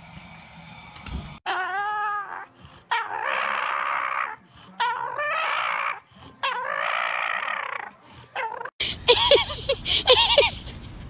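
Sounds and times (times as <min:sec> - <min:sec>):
dog making hoarse vocal sounds: 0:01.5 - 0:08.8.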